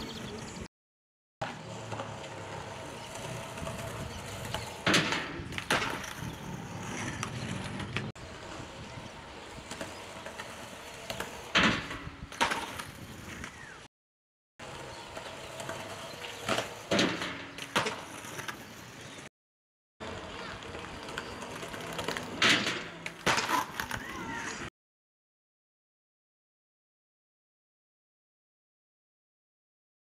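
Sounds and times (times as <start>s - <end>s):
skateboard wheels rolling on concrete: 0.0s - 0.7s, 1.4s - 13.9s, 14.6s - 19.3s, 20.0s - 24.7s
skateboard tail popping and landing: 3.2s - 8.1s, 9.7s - 13.7s, 16.4s - 18.6s, 21.7s - 24.1s.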